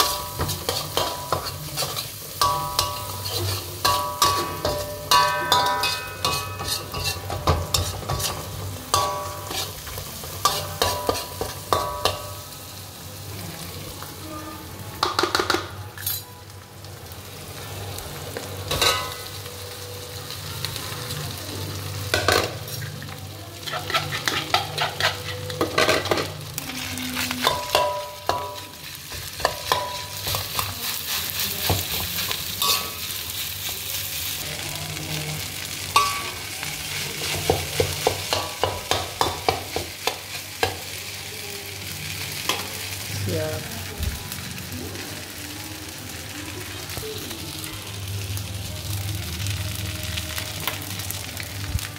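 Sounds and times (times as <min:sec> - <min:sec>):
metal spatula scraping a wok: 0:00.0 - 0:12.5, 0:23.6 - 0:34.4
food sizzling: 0:00.0 - 0:51.9.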